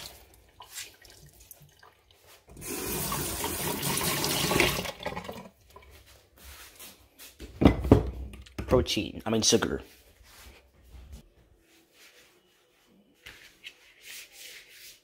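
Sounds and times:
faucet running into steel sink: 2.5s - 5.5s.

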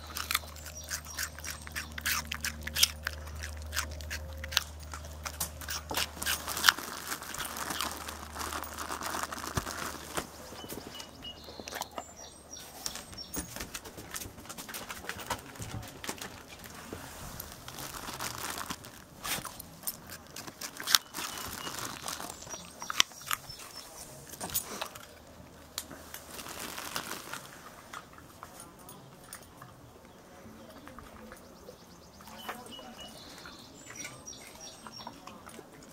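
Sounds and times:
dog crunching carrot: 0.0s - 35.9s.

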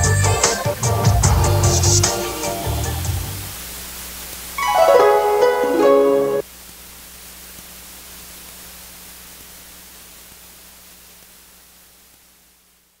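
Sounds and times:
steady hiss with low hum: 0.0s - 13.0s
plucked notes of music: 4.6s - 6.4s.

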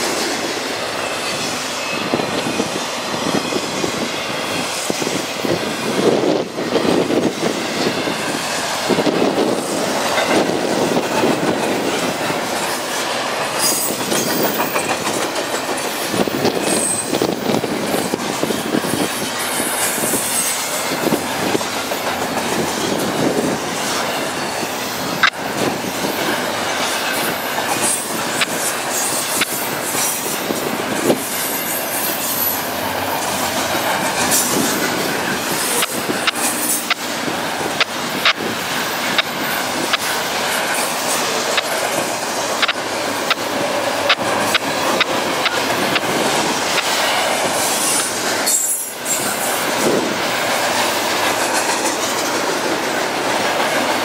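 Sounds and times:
train wheels rolling on rail: 0.0s - 54.0s
high-pitched wheel squeals: 16.5s - 17.3s
sharp clicks: 42.6s - 46.1s.

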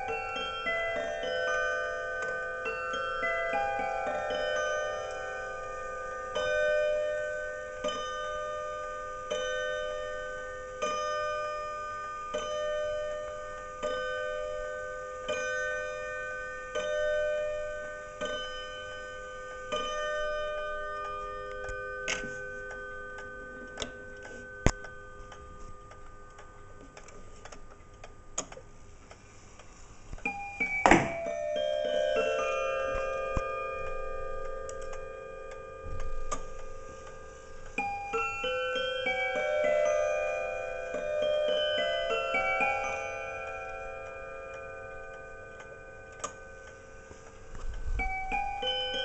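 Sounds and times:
clock striking chime: 0.0s - 28.3s, 30.2s - 49.0s
clock ticking: 19.8s - 32.0s
clock clicks: 21.0s - 31.2s, 32.9s - 38.0s, 40.8s - 49.0s.

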